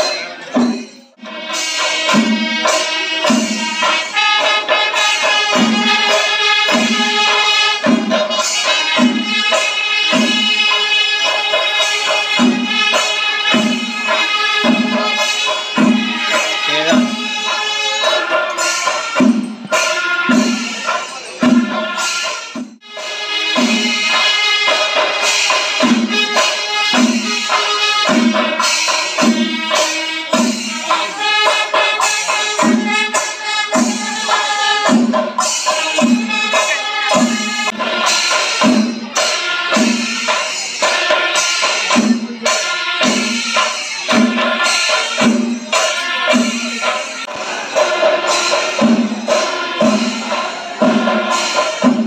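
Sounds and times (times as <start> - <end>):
jingling cymbals: 0.0 - 52.0
steady drum beat: 0.0 - 52.0.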